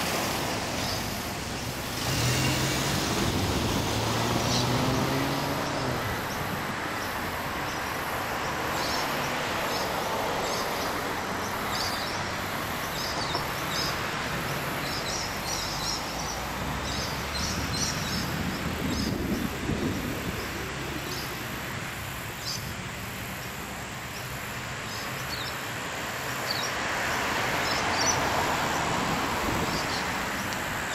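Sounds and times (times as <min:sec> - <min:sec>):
distant traffic hiss: 0:00.0 - 0:30.9
small birds chirping: 0:00.6 - 0:30.9.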